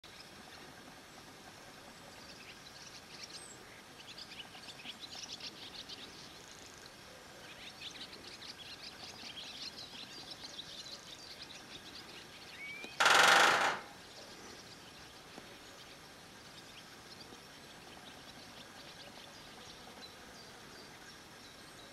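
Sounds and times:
small birds chirping: 0.0s - 21.9s
woodpecker drumming on metal roof: 12.9s - 14.2s.

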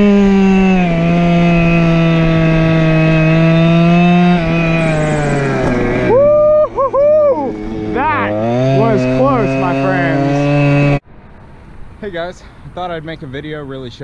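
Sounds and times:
scooter engine running: 0.0s - 11.0s
engine revving: 0.0s - 11.5s.

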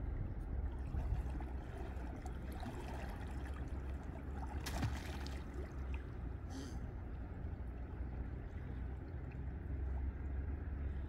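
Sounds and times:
river water flowing and lapping: 0.0s - 11.0s
steady low rumble: 0.0s - 11.0s
water splash: 0.7s - 6.0s.

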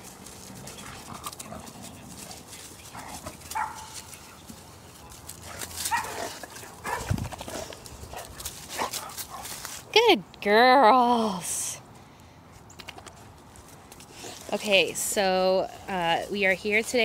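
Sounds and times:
dogs scuffling: 0.0s - 9.9s.

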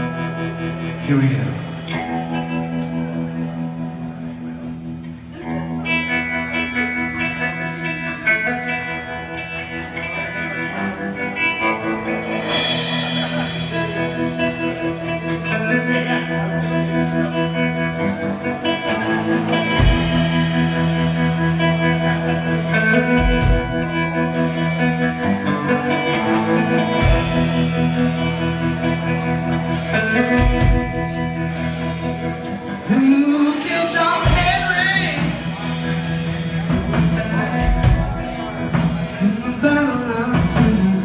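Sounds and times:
electric bass: 0.0s - 41.0s
electric guitar: 0.0s - 41.0s
drum kit: 10.7s - 41.0s.

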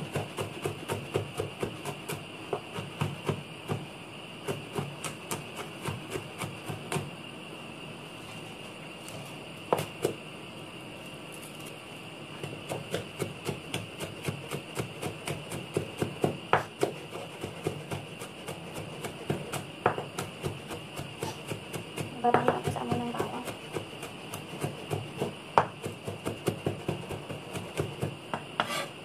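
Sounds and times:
cleaver chopping on wooden board: 12.4s - 21.6s, 22.2s - 28.9s.

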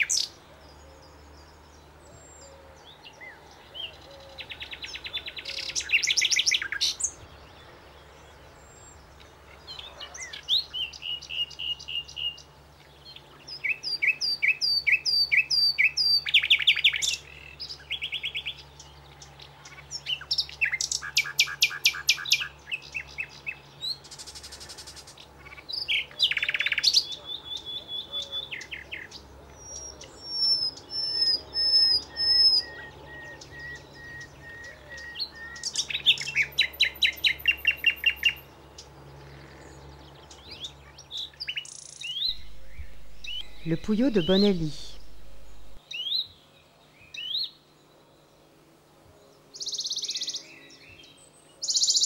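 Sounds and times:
nightingale singing: 41.2s - 46.3s.

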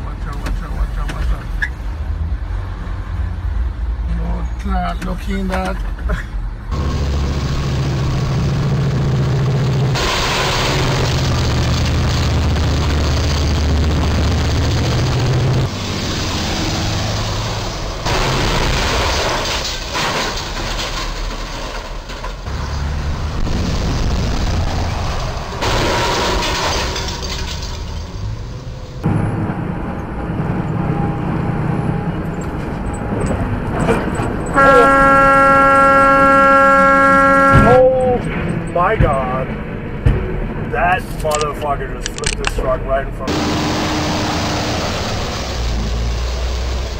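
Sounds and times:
road traffic: 0.0s - 46.9s
truck engine hum: 0.0s - 46.9s
truck air horn: 34.5s - 38.0s.

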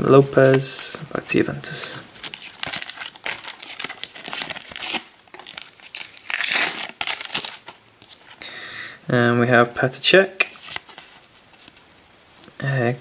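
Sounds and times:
paper packet tearing and crinkling: 2.2s - 8.4s, 10.4s - 11.8s.

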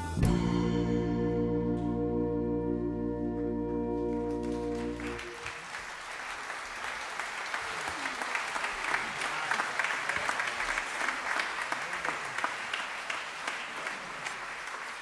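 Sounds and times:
audience applause: 4.0s - 15.0s.

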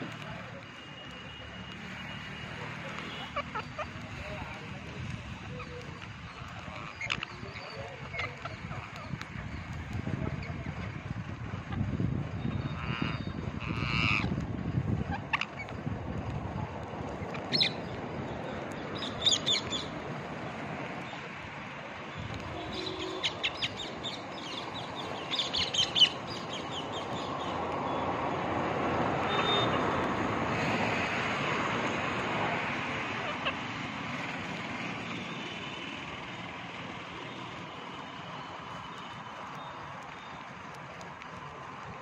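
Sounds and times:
passing vehicle: 0.0s - 42.0s
parakeets shrill calls: 1.8s - 9.7s, 12.4s - 14.3s, 15.1s - 15.7s, 17.2s - 18.0s, 18.9s - 19.9s, 22.2s - 28.1s.

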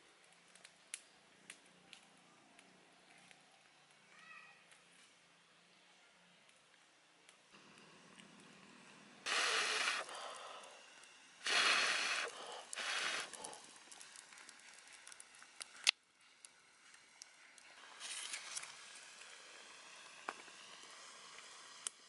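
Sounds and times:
wood fire crackling: 0.0s - 4.0s, 6.4s - 22.0s
sharp snap of fire: 0.5s - 2.7s, 9.2s - 22.0s.

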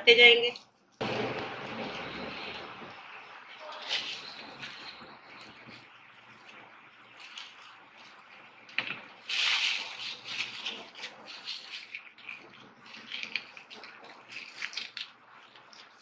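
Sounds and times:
plastic bags rustling: 8.8s - 16.0s.

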